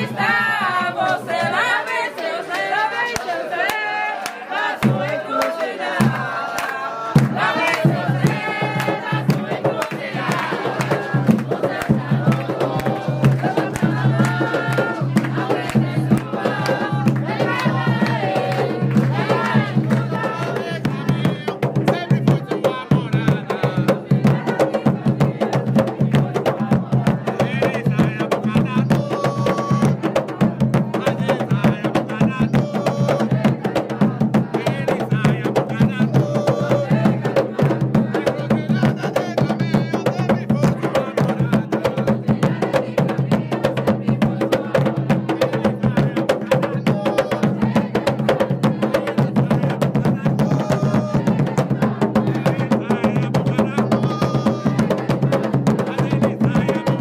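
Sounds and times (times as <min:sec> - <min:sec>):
hand drums beaten fast: 0:00.0 - 0:02.1, 0:04.7 - 0:57.0
voices singing: 0:00.0 - 0:57.0.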